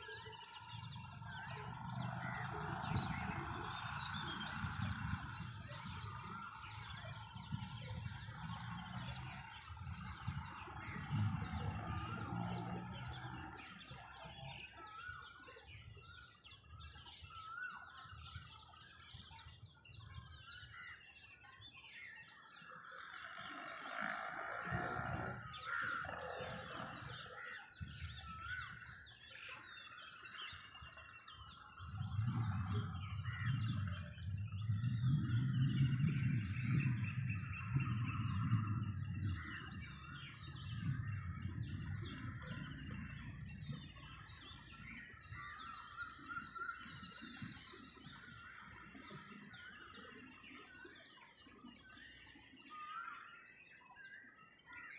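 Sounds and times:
birds chirping: 0:00.0 - 0:54.9
low rumble: 0:31.8 - 0:44.8.

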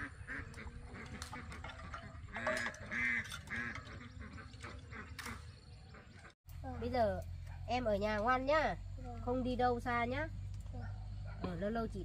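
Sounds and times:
ducks quacking: 0:00.0 - 0:06.9.

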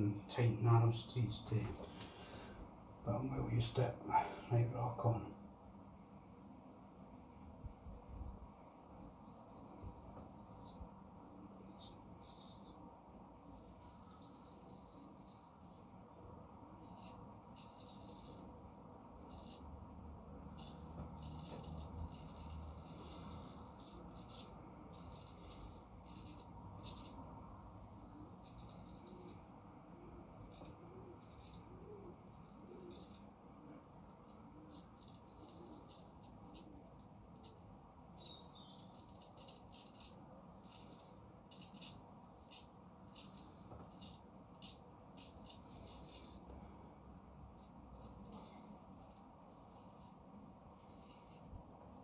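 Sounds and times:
razor scraping stubble: 0:08.9 - 0:10.8, 0:11.6 - 0:12.9, 0:13.5 - 0:15.9, 0:16.8 - 0:18.5, 0:19.1 - 0:19.7, 0:20.5 - 0:27.2, 0:28.4 - 0:29.4, 0:30.4 - 0:33.3, 0:34.1 - 0:46.5, 0:47.6 - 0:50.2, 0:50.8 - 0:52.0.

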